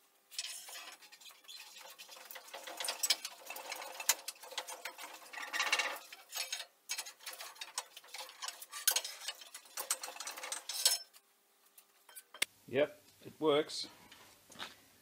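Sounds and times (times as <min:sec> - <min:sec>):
chain and engine rattling: 0:00.4 - 0:11.2
steel bar clinking on metal: 0:02.6 - 0:11.2.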